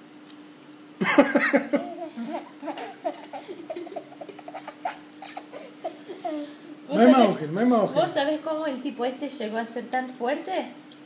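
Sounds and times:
toddler laughing: 1.1s - 6.8s.

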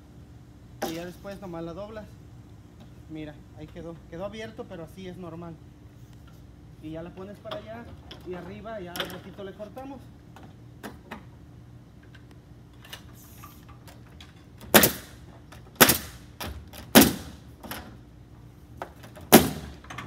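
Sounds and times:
nail gun firing: 14.6s - 17.4s, 19.3s - 19.9s.

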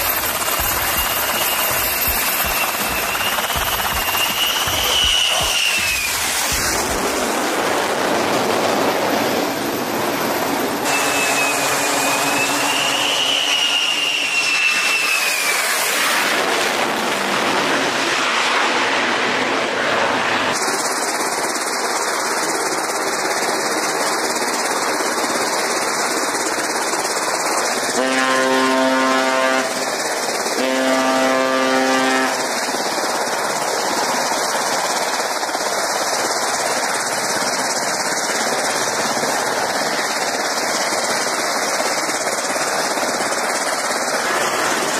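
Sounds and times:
wavering whine: 0.0s - 7.4s
engine noise: 0.0s - 44.9s
horn blasts: 10.8s - 14.5s, 28.0s - 29.9s, 30.6s - 32.5s.

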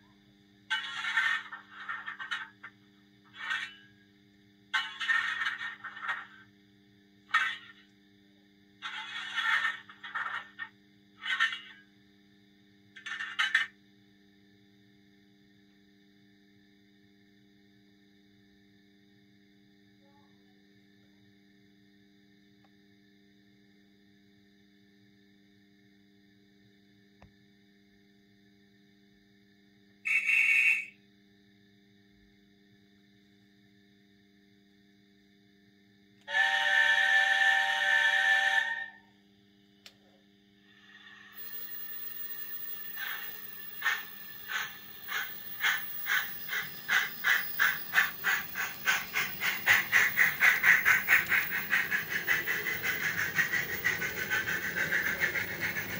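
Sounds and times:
toy train steam whistle: 30.0s - 31.0s, 36.2s - 39.2s, 40.7s - 55.9s.

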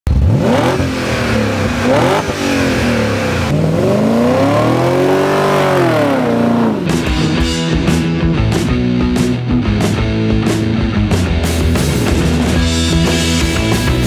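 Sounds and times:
car engine revving: 0.1s - 8.1s.

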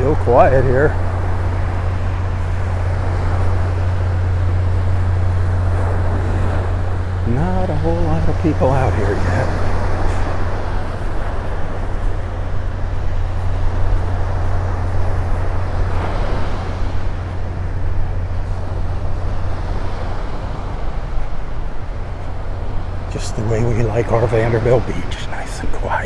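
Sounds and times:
surf breaking on beach: 0.0s - 26.0s
wind rumbling on microphone: 0.0s - 26.0s.

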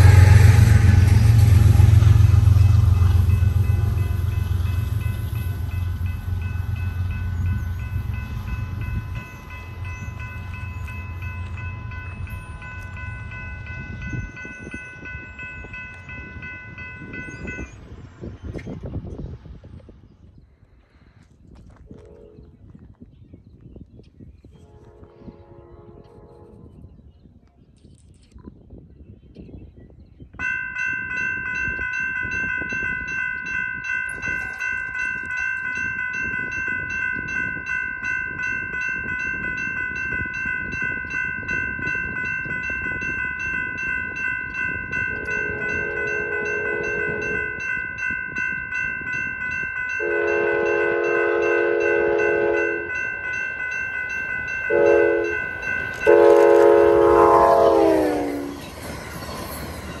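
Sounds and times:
locomotive horn blasts: 0.0s - 7.6s, 24.6s - 26.7s, 45.2s - 47.6s, 50.0s - 52.9s, 54.7s - 58.6s
railroad crossing bell ringing: 0.0s - 19.2s, 30.4s - 60.0s
train rushing past: 0.0s - 20.3s, 49.8s - 60.0s.

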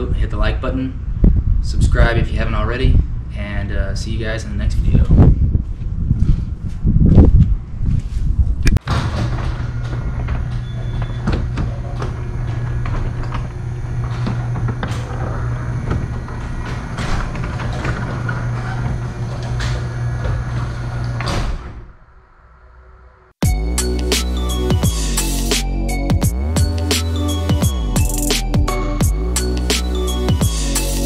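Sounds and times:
garage door rattling and clicking: 8.8s - 22.0s
garage door opener motor hum: 8.8s - 22.1s
music: 23.4s - 31.0s.

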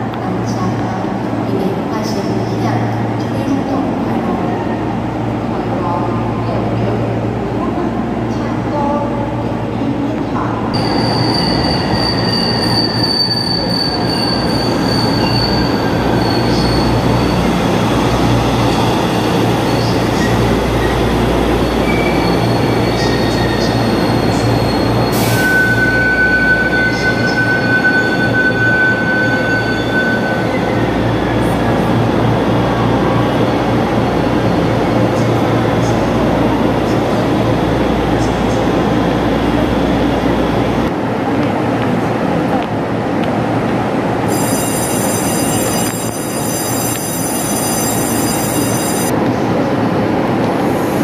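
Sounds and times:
wheel and brake squeals: 10.8s - 17.6s, 21.8s - 30.9s.

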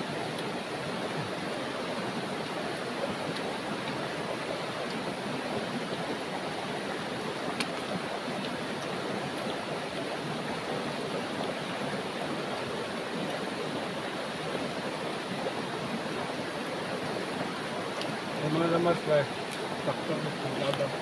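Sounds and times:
river flowing over rocks: 0.0s - 21.0s.

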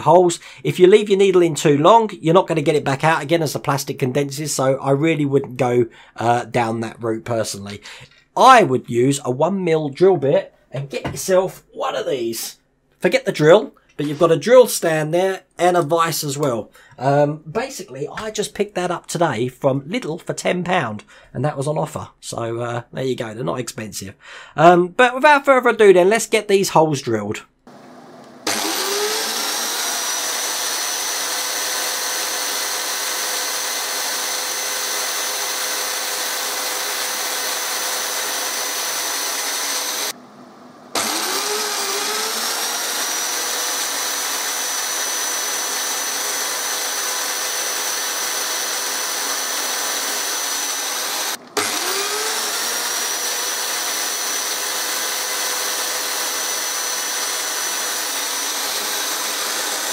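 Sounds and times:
electric drill whining: 27.7s - 40.2s, 40.9s - 59.9s.

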